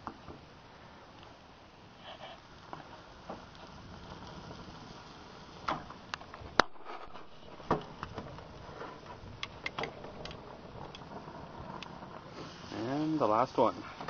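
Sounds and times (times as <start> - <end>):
steaks sizzling on a grill: 2.0 - 6.2, 10.1 - 14.0.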